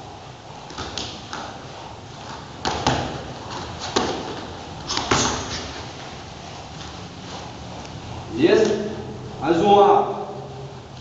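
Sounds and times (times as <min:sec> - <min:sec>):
bare feet stamping on mats: 0:00.6 - 0:06.1
kicks and punches landing: 0:02.6 - 0:05.7.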